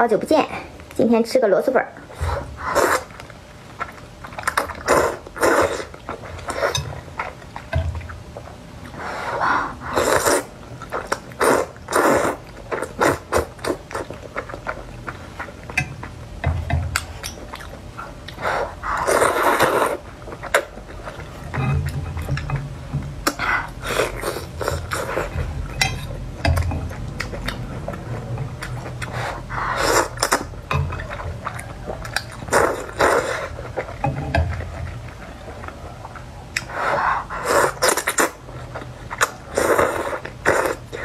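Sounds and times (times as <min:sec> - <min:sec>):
noodle slurping: 0:02.2 - 0:07.4, 0:08.9 - 0:14.7, 0:18.3 - 0:21.3, 0:28.9 - 0:30.5, 0:31.6 - 0:33.8, 0:36.6 - 0:38.5, 0:39.1 - 0:41.0
wet smacking and chewing: 0:02.4 - 0:09.0, 0:09.8 - 0:41.0.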